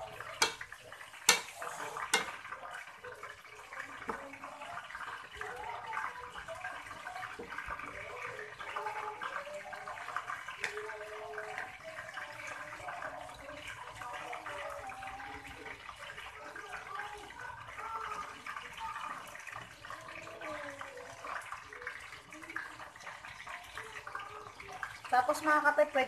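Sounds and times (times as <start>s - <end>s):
spatula knocking on pan: 0.2s - 0.7s, 1.3s - 2.4s.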